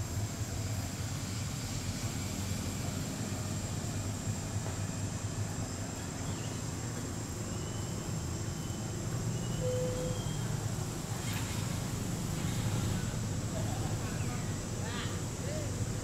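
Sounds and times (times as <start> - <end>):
thin high-pitched whine: 7.5 - 14.5
faint short high chirps: 9.4 - 10.5.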